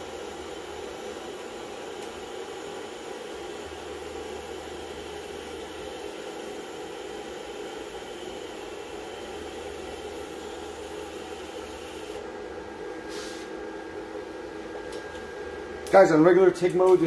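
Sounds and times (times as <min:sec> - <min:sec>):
welding arc hissing: 0:01.5 - 0:12.2.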